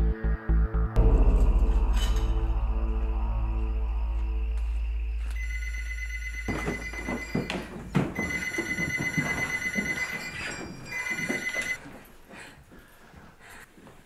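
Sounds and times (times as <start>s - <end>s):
landline telephone ringing: 5.4s - 7.6s, 8.2s - 11.8s
thumps and knocks of movement: 6.4s - 11.8s.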